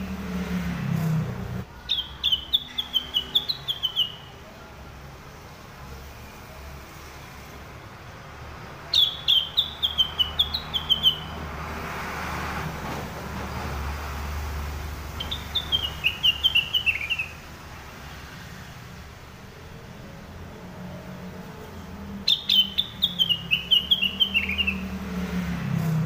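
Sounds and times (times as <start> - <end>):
songbird singing high notes: 1.9 - 4.4, 8.8 - 11.4, 15.2 - 17.5, 22.2 - 25.0.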